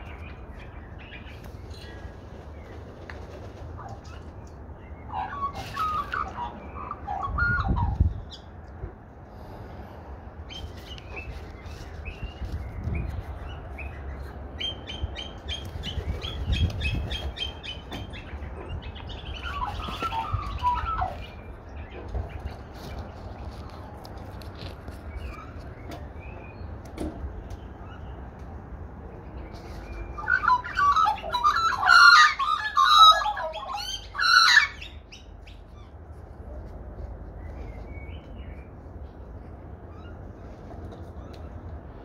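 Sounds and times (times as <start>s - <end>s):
magpies warbling: 3.8s - 8.5s, 14.6s - 22.0s, 30.1s - 36.0s.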